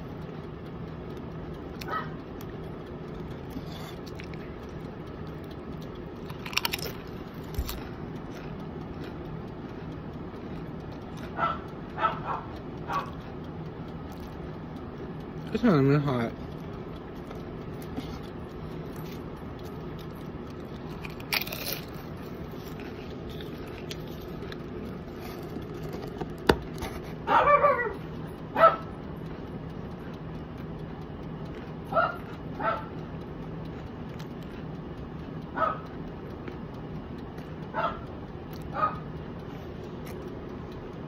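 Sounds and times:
steady low hum: 0.0 - 41.0
dog barking: 1.9 - 2.2, 11.4 - 13.2, 27.3 - 28.0, 28.6 - 28.9, 31.9 - 32.9, 35.6 - 35.8, 37.8 - 38.0, 38.7 - 39.0.

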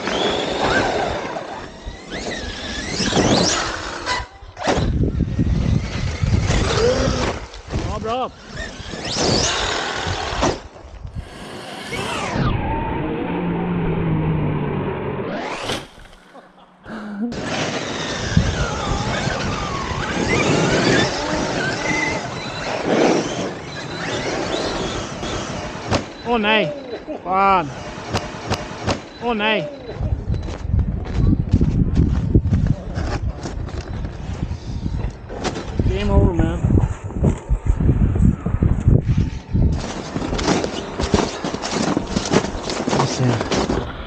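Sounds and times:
electric motor whining: 8.3 - 16.3, 17.3 - 26.2
loud even rushing noise: 11.2 - 16.6.

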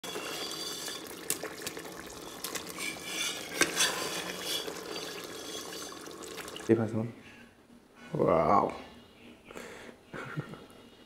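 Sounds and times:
spatula stirring thick curry: 2.2 - 6.5.

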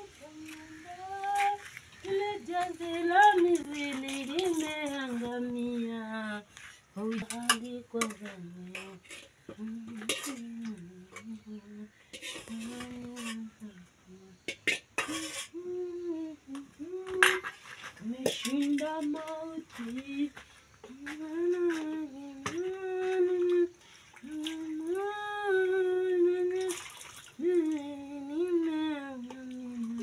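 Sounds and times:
person singing slow tune: 0.0 - 14.5, 15.4 - 26.8, 27.4 - 30.0
dishes and utensils clinking: 14.5 - 15.6.

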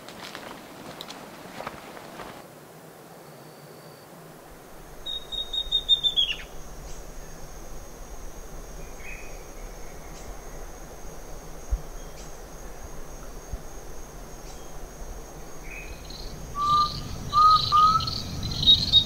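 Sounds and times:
faint hiss: 1.0 - 17.4
high-pitched insect buzz: 3.4 - 19.0
bird calls: 4.9 - 7.7, 15.6 - 19.0
bird whistling and chirping: 5.1 - 6.5, 16.6 - 19.0.

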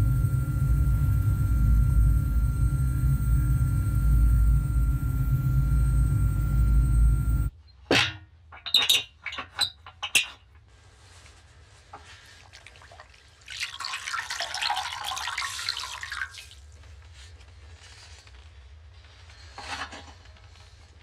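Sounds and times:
water splashing into metal basin: 12.4 - 16.6.

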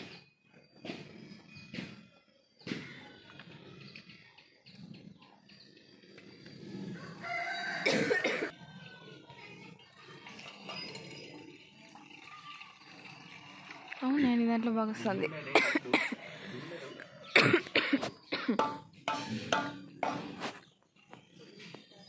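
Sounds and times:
rooster crowing: 7.0 - 8.5.

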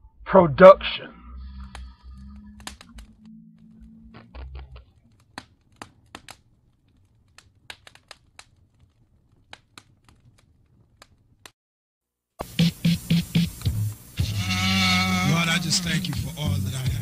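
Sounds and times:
low hum: 0.0 - 5.3
faint clicks and crackling: 1.3 - 11.6.

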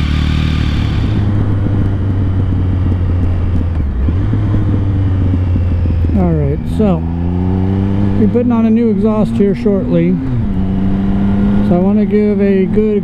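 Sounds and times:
motorcycle engine running: 0.0 - 13.0
raspy engine sound: 0.0 - 13.0
wind noise: 0.7 - 9.0.

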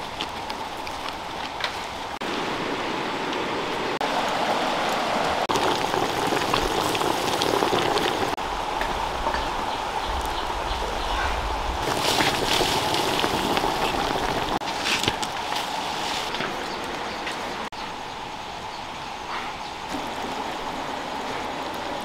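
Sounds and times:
stew bubbling and sizzling in a wok: 0.0 - 17.0.

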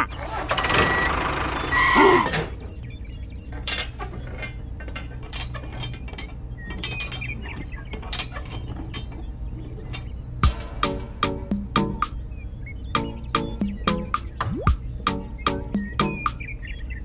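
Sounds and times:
small parts clicking and scraping: 3.5 - 9.2.

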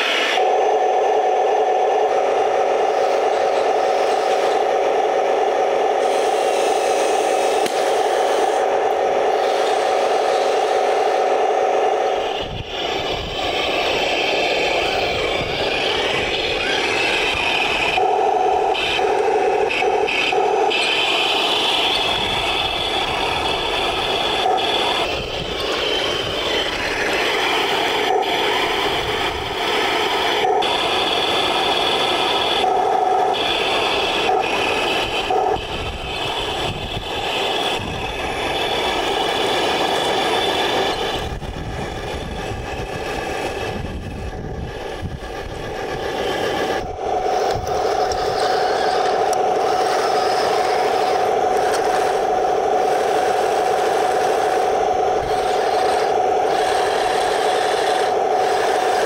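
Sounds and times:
wind rumbling on microphone: 12.2 - 14.0, 14.6 - 17.9, 35.0 - 38.7, 40.8 - 49.8
toy tank motor whine: 12.2 - 18.0, 18.6 - 32.7, 33.3 - 42.8, 47.4 - 59.0.

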